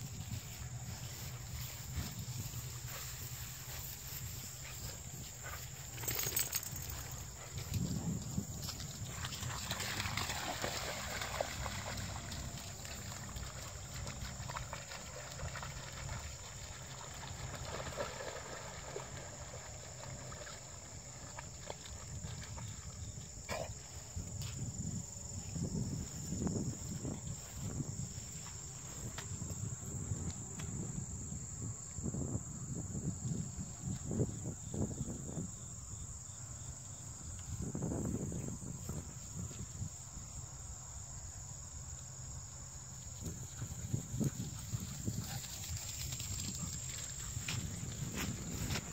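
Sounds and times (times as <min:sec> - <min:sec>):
insect chorus: 0:00.0 - 0:48.9
dog splashing through water: 0:09.2 - 0:22.8.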